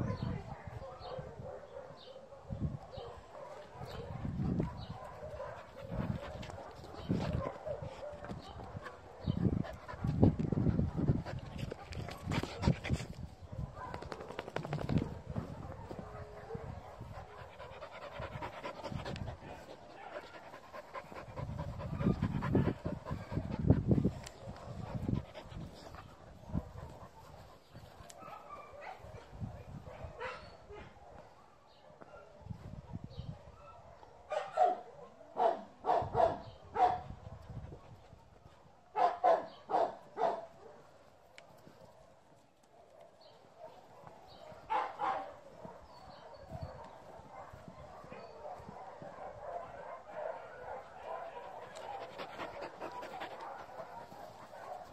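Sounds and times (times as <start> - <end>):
dog barking: 0.1 - 6.7, 7.4 - 8.3, 13.7 - 14.0, 28.2 - 29.2, 29.9 - 32.4, 33.5 - 37.0, 39.0 - 40.8, 43.0 - 51.8, 53.2 - 54.9
dog panting: 4.6 - 13.2, 16.1 - 28.2, 51.0 - 54.9.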